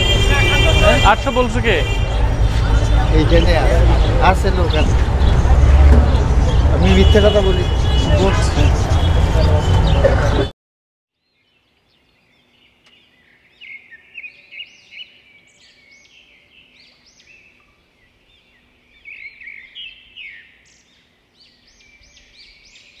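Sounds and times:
small birds chirping: 11.2 - 23.0.

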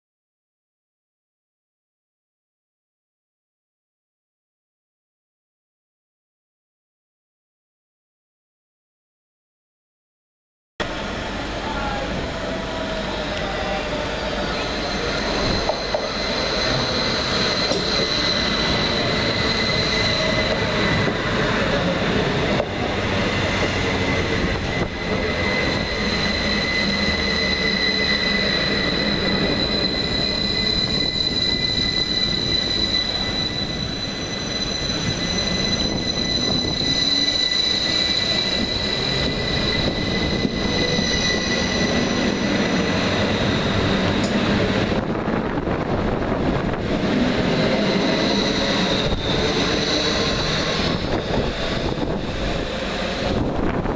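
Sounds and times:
train wheel and rail rumble: 10.8 - 53.9
high-pitched squeal: 11.8 - 53.9.

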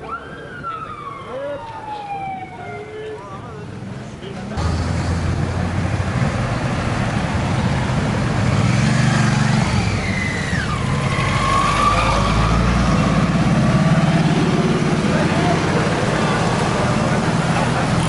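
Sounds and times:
engine revving: 4.6 - 18.0
motorcycle and car engines passing: 4.6 - 18.0.

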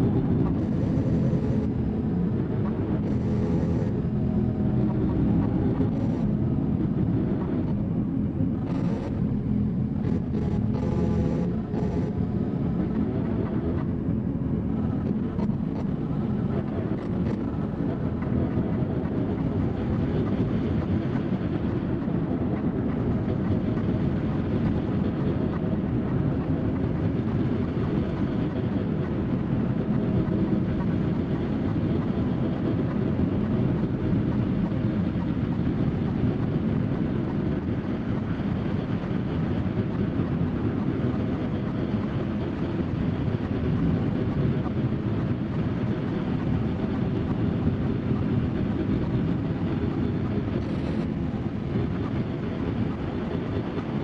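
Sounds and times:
harsh noise drone: 0.0 - 54.0.

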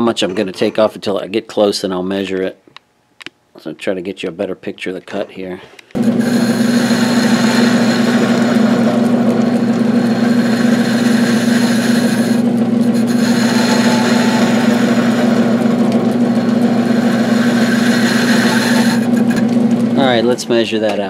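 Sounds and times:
lathe motor hum: 6.0 - 20.7
tool cutting steel hiss: 10.0 - 19.4.

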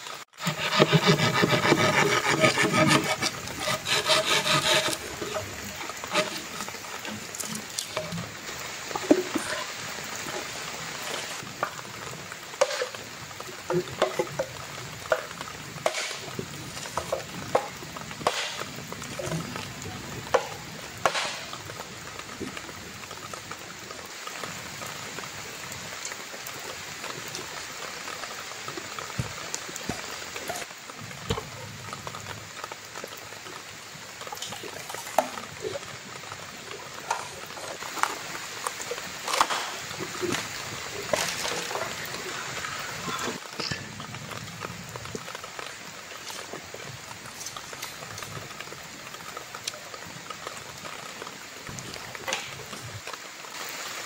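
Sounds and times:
steady hiss: 0.0 - 54.0
machete chopping bamboo: 21.1 - 21.4.

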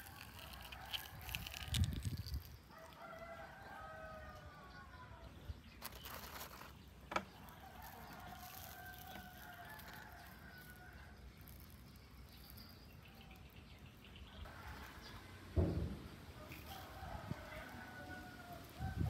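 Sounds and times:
rooster crowing: 2.7 - 5.1, 16.4 - 19.0
sharp knocks: 15.6 - 16.2.

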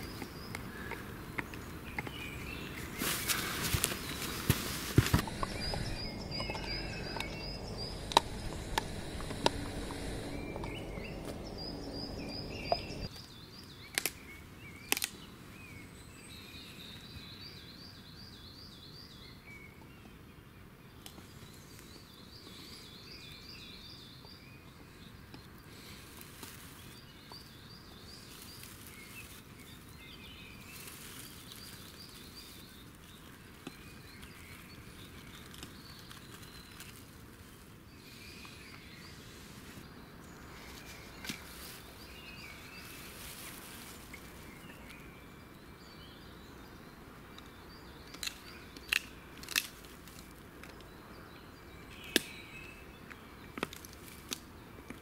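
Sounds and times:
small birds chirping: 0.0 - 55.0
person blowing breaths: 5.2 - 13.1.

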